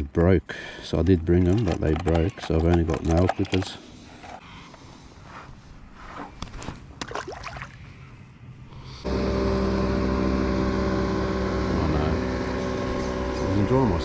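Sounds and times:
clicks and handling rustles: 0:00.8 - 0:04.4
motorboat engine drone: 0:08.9 - 0:14.0.

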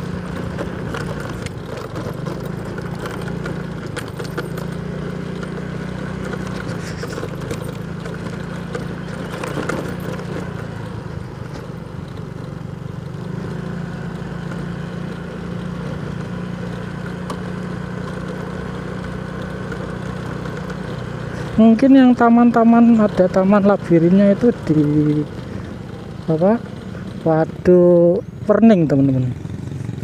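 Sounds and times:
road noise: 0:00.0 - 0:30.0
small motorcycle engine running: 0:00.0 - 0:30.0.

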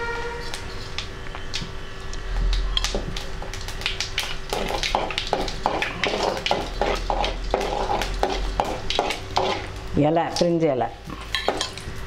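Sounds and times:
seeds sizzling in hot oil: 0:00.4 - 0:12.0
metal ladle scraping a pan: 0:05.6 - 0:09.7.

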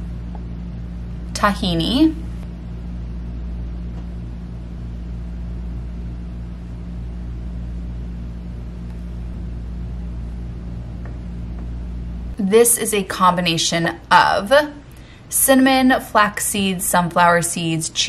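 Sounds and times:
low hum with pulsing flutter: 0:00.0 - 0:16.0.

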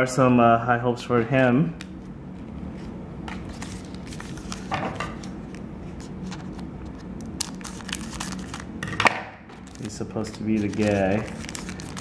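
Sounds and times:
steady low hum: 0:00.0 - 0:12.0
wrapper crinkling: 0:06.2 - 0:08.7, 0:09.5 - 0:12.0
scissors snipping foil: 0:09.8 - 0:12.0.

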